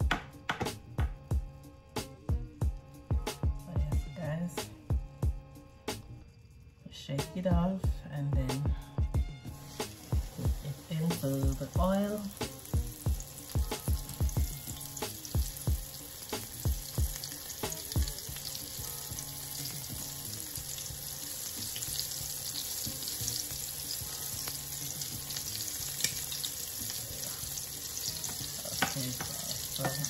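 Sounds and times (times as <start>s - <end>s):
fish frying in hot oil: 9.6s - 30.0s
oil popping: 9.6s - 30.0s.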